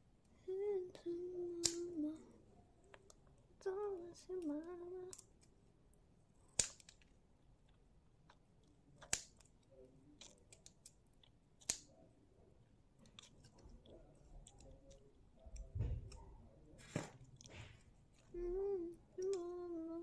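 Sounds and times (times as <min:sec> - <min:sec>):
blade clicks: 0:01.6 - 0:02.0, 0:06.5 - 0:07.1, 0:09.0 - 0:09.5, 0:11.6 - 0:11.9
scissors snipping plastic: 0:01.6 - 0:02.0, 0:06.5 - 0:07.0, 0:09.0 - 0:09.5, 0:11.6 - 0:11.9.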